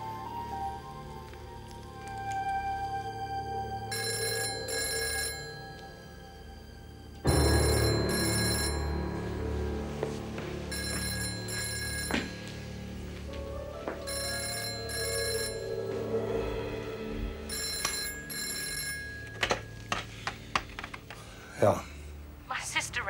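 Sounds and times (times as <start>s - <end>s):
soft background music: 0.0s - 23.0s
telephone ringing: 3.9s - 6.3s, 7.2s - 10.0s, 10.6s - 12.8s, 14.0s - 16.2s, 17.4s - 20.1s.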